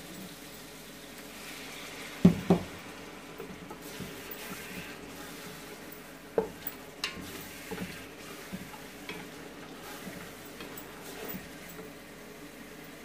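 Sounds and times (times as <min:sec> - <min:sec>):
light sizzle: 0:00.0 - 0:13.0
wooden spoon scraping a pot: 0:03.5 - 0:11.8.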